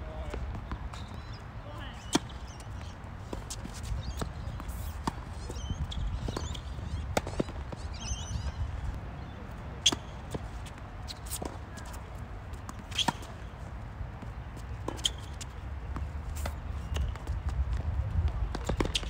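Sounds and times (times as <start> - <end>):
tennis ball bouncing on hard court: 2.0 - 8.3, 18.5 - 19.0.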